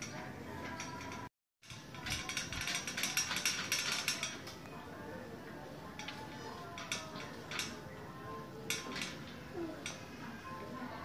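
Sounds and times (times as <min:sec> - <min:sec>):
metal gate rattling: 0:00.0 - 0:04.5.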